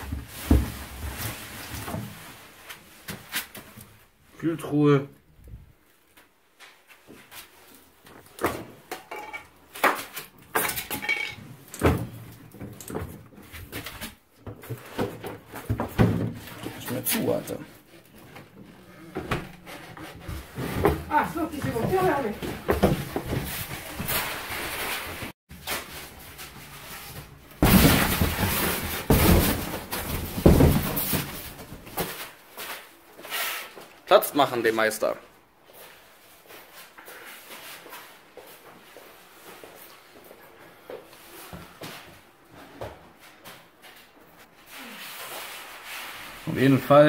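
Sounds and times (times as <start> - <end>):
cardboard and polystyrene rustling: 0.0 - 3.8, 19.5 - 33.8.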